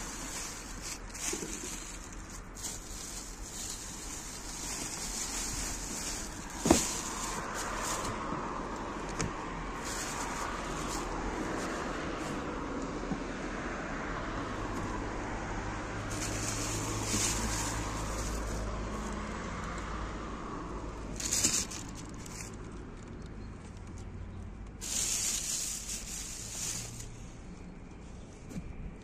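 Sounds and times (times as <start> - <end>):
plastic bags rustling: 0.0 - 12.5, 16.0 - 19.1, 21.1 - 23.3, 24.7 - 27.2.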